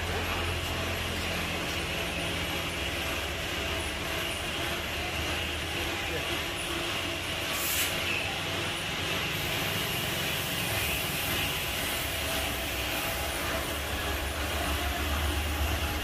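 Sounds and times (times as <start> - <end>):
spray paint gun hissing: 7.5 - 8.2, 9.3 - 14.0.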